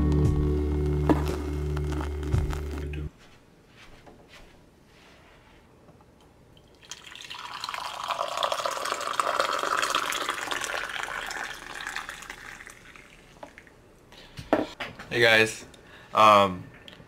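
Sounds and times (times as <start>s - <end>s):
coffee pouring into mug: 6.6s - 13.7s.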